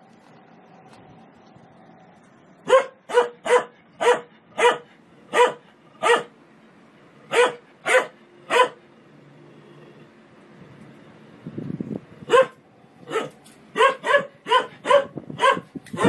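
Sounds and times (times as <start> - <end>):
dog barking: 2.6 - 6.3, 7.3 - 8.8, 12.3 - 16.0.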